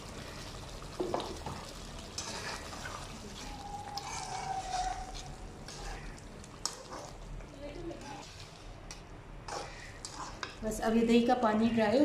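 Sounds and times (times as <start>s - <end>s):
frying sizzle: 0.0s - 11.2s
spatula scraping pan: 2.0s - 10.8s.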